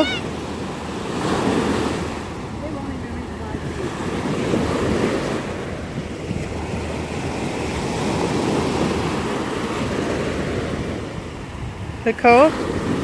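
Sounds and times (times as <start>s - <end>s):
surf washing onto sandy shore: 0.0s - 13.0s.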